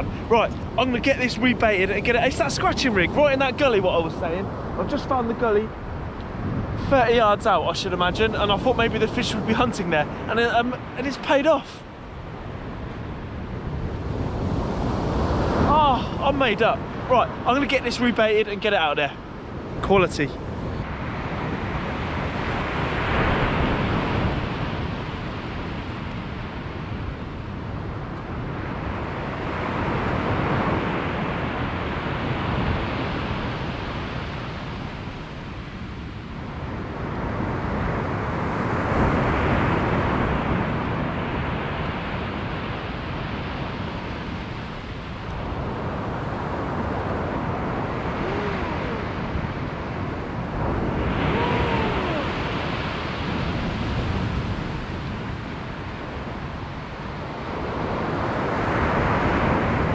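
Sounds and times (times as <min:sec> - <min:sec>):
sea surf breaking: 0:00.0 - 0:59.9
wind noise on microphone: 0:00.0 - 0:59.9.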